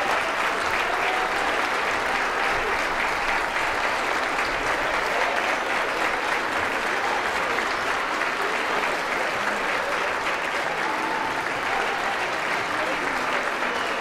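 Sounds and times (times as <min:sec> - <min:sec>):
crowd applauding: 0:00.0 - 0:14.0.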